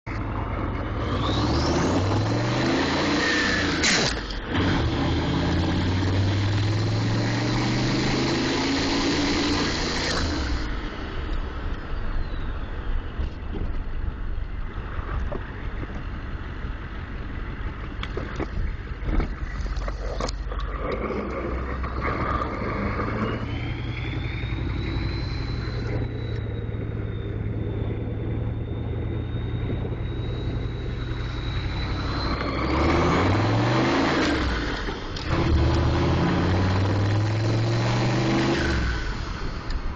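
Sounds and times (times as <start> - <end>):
diesel engine accelerating: 0.1 - 39.9
turbo whistle: 21.9 - 37.0.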